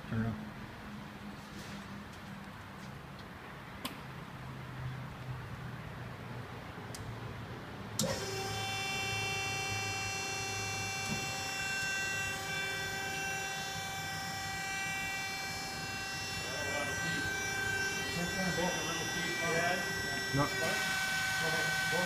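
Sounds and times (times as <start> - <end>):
hydraulic pump motor whining: 8.0 - 22.0.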